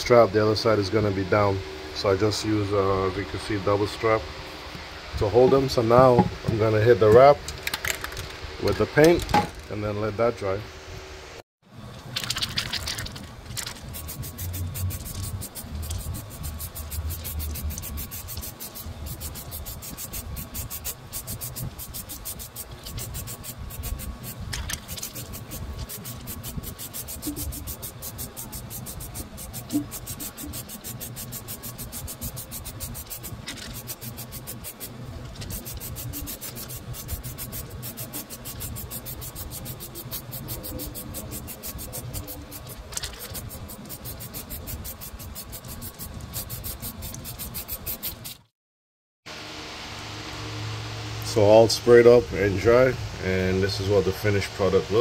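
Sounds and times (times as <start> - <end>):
aerosol can spraying: 13.8 - 48.4.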